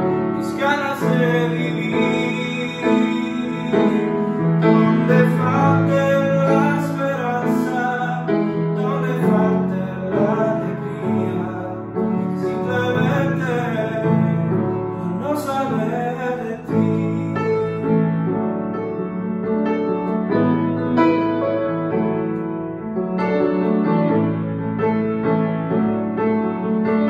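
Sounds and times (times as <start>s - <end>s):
man singing: 0.0s - 18.2s
keyboard playing piano chords: 0.0s - 27.0s.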